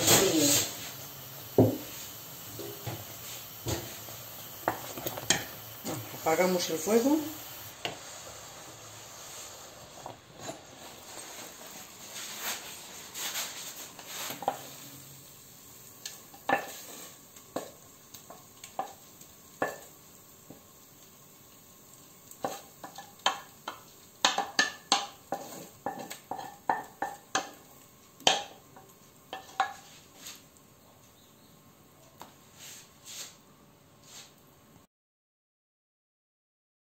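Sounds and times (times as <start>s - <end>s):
wooden spoon scraping saucepan: 0.0s - 8.1s, 9.2s - 15.0s, 24.3s - 27.5s, 29.3s - 30.5s
spoon knocking metal pan: 4.6s - 6.9s, 22.5s - 27.6s, 28.2s - 29.8s.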